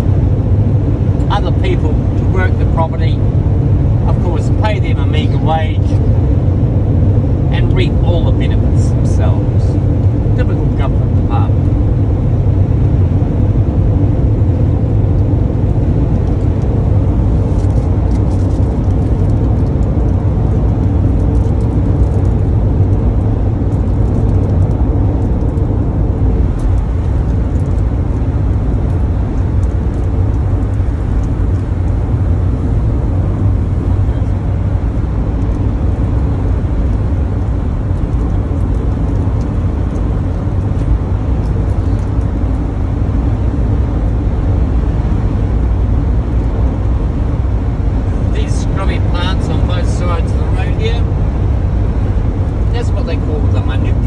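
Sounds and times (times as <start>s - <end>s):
engine and road rumble: 0.0s - 54.0s.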